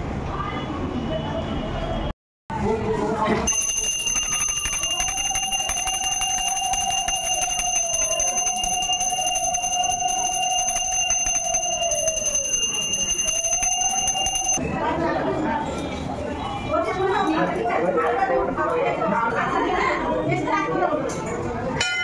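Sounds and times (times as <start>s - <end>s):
hand bell ringing rapidly: 3.5s - 14.6s.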